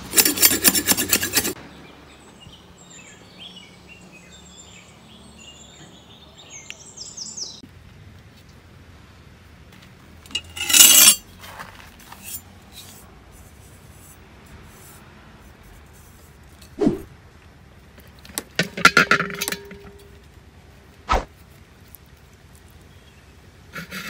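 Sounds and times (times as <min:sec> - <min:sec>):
metal pot clattering on stone: 0:18.6 - 0:20.1.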